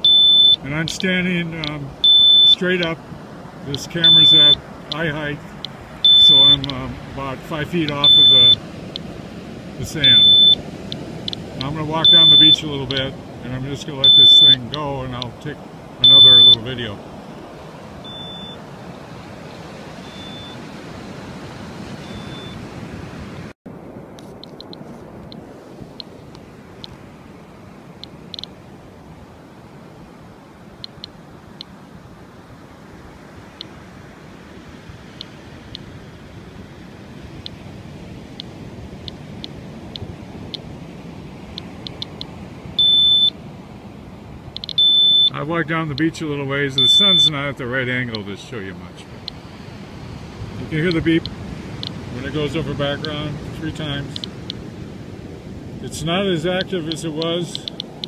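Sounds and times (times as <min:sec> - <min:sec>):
short high beeps: 0:00.0 - 0:01.0, 0:01.6 - 0:02.9, 0:03.8 - 0:05.2, 0:06.0 - 0:06.8, 0:07.9 - 0:08.6, 0:10.0 - 0:10.6, 0:11.2 - 0:13.0, 0:14.0 - 0:14.8, 0:16.0 - 0:16.7, 0:18.0 - 0:18.6, 0:20.0 - 0:20.6, 0:22.0 - 0:22.6, 0:42.8 - 0:43.4, 0:44.6 - 0:45.4, 0:46.8 - 0:47.4
geiger counter chirps: 0:00.0 - 0:02.9, 0:03.7 - 0:06.8, 0:07.9 - 0:08.6, 0:10.0 - 0:10.6, 0:11.2 - 0:13.1, 0:13.8 - 0:14.8, 0:16.0 - 0:16.7, 0:18.0 - 0:18.6, 0:20.0 - 0:20.6, 0:22.0 - 0:22.6, 0:41.9 - 0:43.4, 0:44.6 - 0:45.4, 0:46.7 - 0:47.4
surf washing: 0:00.0 - 0:58.0.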